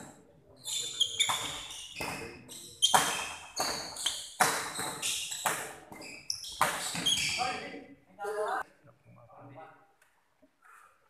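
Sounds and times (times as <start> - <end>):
shoes squeaking on court floor: 0.0 - 7.7
racquets hitting shuttlecock: 1.2 - 7.3.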